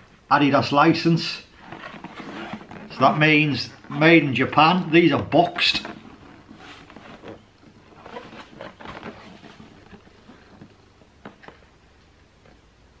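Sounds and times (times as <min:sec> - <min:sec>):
cardboard box rustling: 0:01.6 - 0:04.0, 0:04.8 - 0:11.8.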